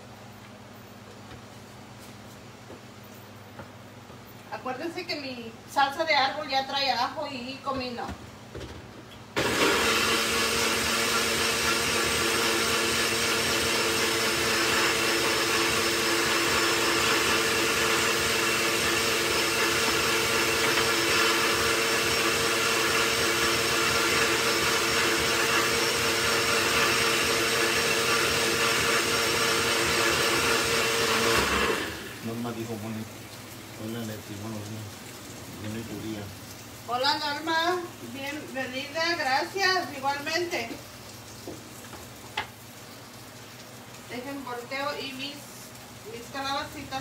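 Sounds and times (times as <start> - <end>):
blender running: 9.3 - 32.8.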